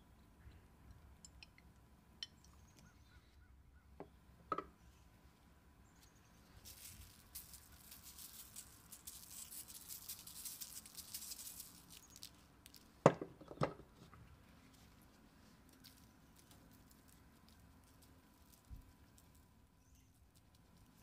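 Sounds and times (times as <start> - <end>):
salt pattering from a shaker: 6.6 - 12.9.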